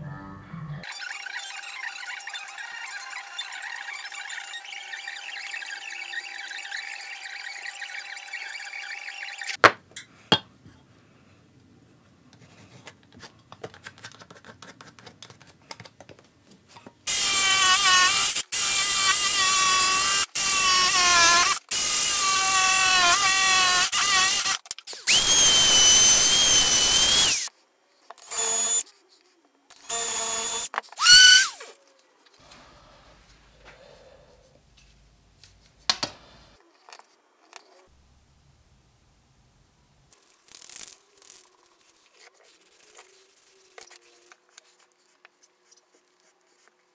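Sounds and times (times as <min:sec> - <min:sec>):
jigsaw cutting wood: 0:17.1 - 0:27.5, 0:28.2 - 0:28.8
power tool bursts: 0:17.1 - 0:27.5, 0:29.8 - 0:31.6.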